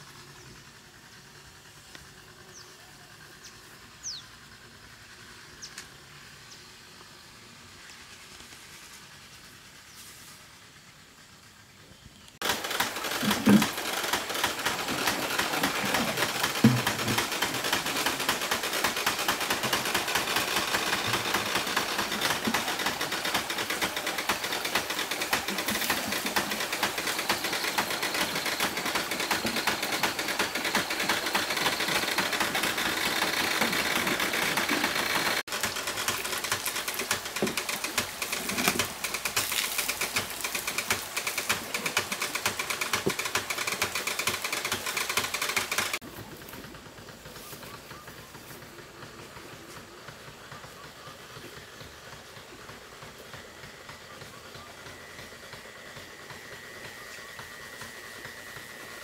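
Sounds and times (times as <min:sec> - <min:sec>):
water wheel clattering: 0:12.4 - 0:59.0.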